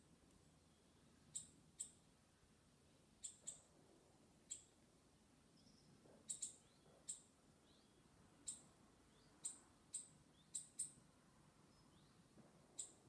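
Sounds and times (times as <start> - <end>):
faint bird chirps: 0.6 - 2.2, 3.2 - 3.8, 4.4 - 4.8, 5.5 - 13.0.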